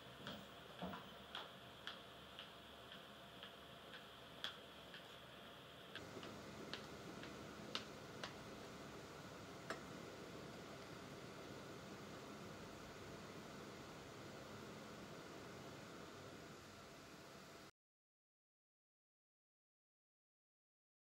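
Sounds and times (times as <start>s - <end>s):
background hiss: 0.0s - 17.7s
scattered clicks: 1.3s - 5.1s, 5.9s - 8.4s.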